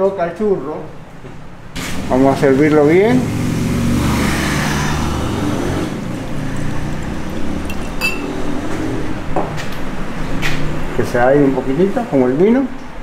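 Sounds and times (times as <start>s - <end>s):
liquid pouring into a glass: 6.1s - 8.6s
glass clink: 7.6s - 8.5s.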